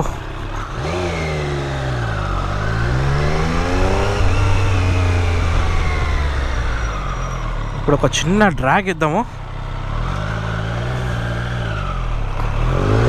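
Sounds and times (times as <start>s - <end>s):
motorcycle engine accelerating: 0.0s - 13.0s
wind noise on microphone: 2.6s - 7.1s.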